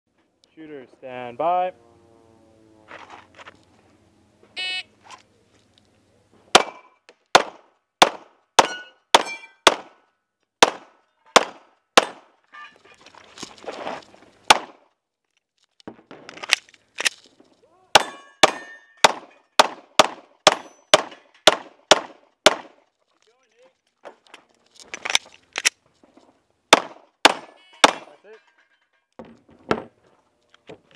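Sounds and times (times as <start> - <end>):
shuffling noise: 2.8 - 4.0, 4.9 - 6.5, 12.6 - 14.4
shot timer beep: 4.6 - 4.8
metallic ding on steel plate: 8.6 - 9.6
airsoft pistol shots: 18.0 - 22.7, 26.7 - 28.1.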